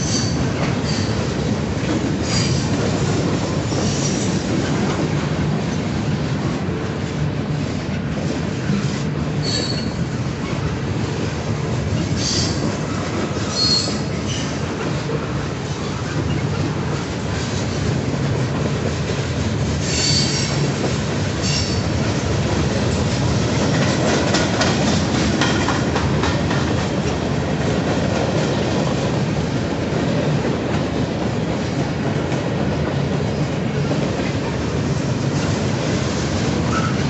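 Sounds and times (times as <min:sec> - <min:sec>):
freight train rumbling past: 0:00.0 - 0:37.0
wheels squealing: 0:09.4 - 0:10.0, 0:13.4 - 0:14.5, 0:19.8 - 0:20.6
wheels clicking over rail joints: 0:19.8 - 0:27.2.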